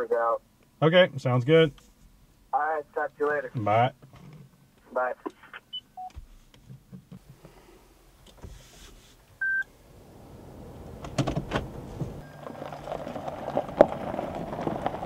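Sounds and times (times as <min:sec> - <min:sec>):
tyres crunching on gravel: 0:09.2 - 0:15.0
stones knocking under wheels: 0:11.1 - 0:15.0
short electronic beep: 0:12.2 - 0:12.6.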